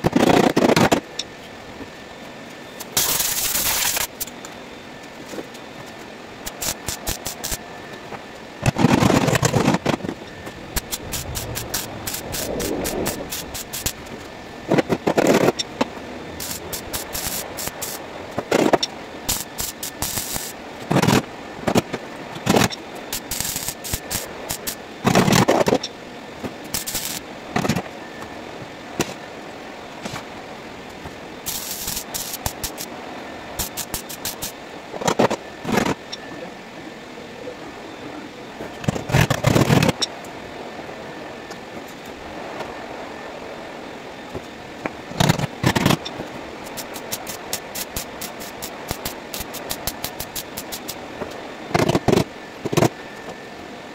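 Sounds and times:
welding arc crackle: 2.8 - 4.3, 6.4 - 7.6, 8.6 - 15.6, 16.3 - 25.8, 26.6 - 27.8, 31.4 - 32.9, 33.6 - 34.6, 45.1 - 52.9.

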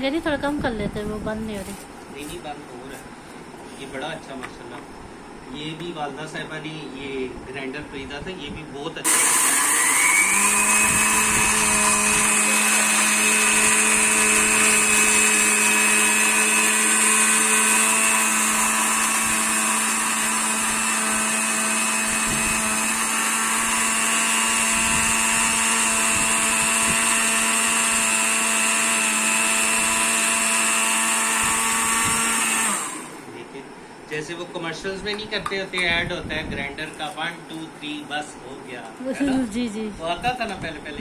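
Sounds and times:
electric spice grinder running: 9.1 - 33.2.

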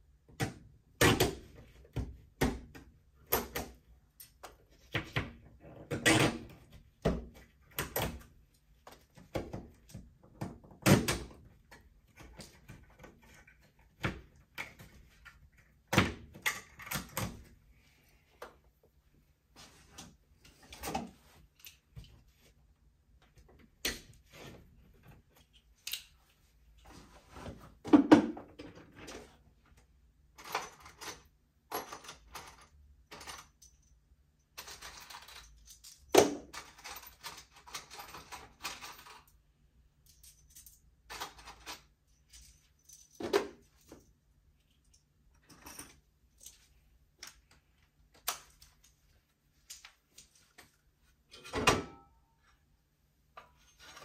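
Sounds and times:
rustling or scraping: 26.8 - 27.8.

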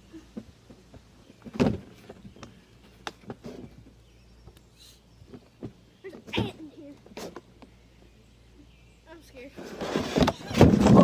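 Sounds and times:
loud thump on wooden porch: 1.4 - 2.2, 9.8 - 11.0.

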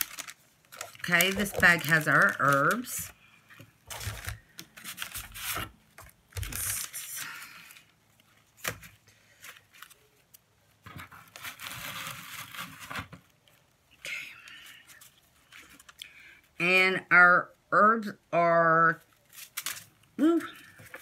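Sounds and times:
paper rustling and crinkling: 0.0 - 13.8, 19.0 - 21.0.

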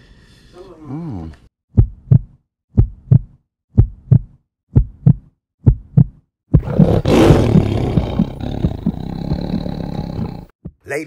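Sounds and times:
heartbeat-like double thumps: 1.7 - 9.8.

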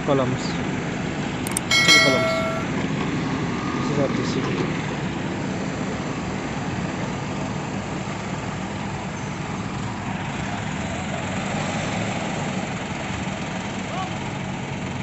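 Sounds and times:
crane diesel engines running: 0.0 - 11.5.

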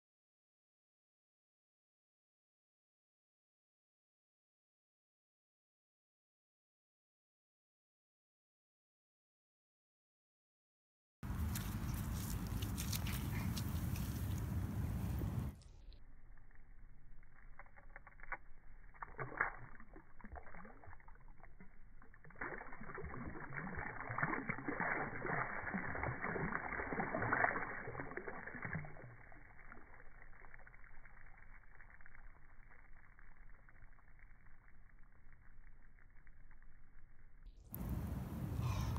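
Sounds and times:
fish splashing in shallow water: 11.2 - 15.6, 16.2 - 36.8.

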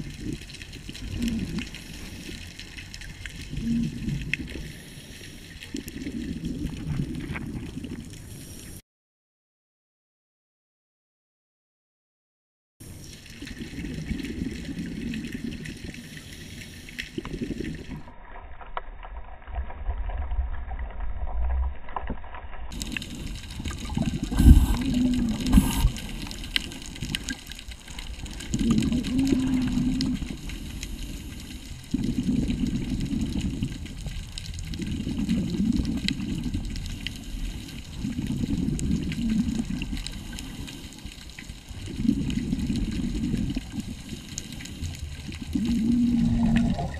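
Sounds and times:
underwater regulator breathing bubbles: 22.8 - 27.4, 28.3 - 33.7, 41.8 - 46.9.

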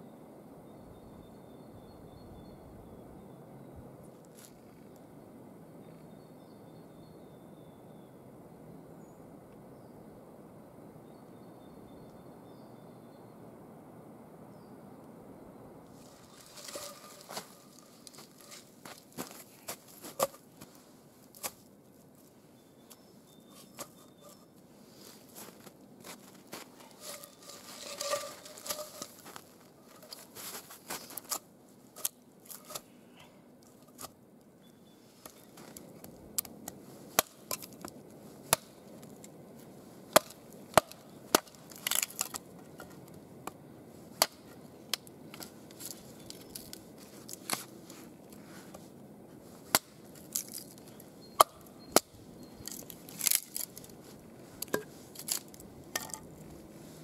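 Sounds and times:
footsteps crunching in snow: 16.0 - 32.8
hatchet chopping wood: 37.2 - 37.7, 40.1 - 42.1.

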